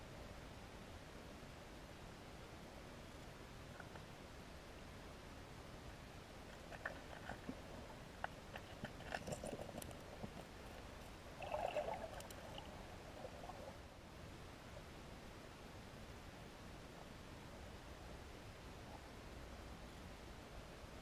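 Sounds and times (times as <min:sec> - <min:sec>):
underwater rustle: 0:03.6 - 0:04.2, 0:06.4 - 0:13.9
faint underwater hiss: 0:05.9 - 0:21.0
small underwater clicks: 0:06.5 - 0:13.7.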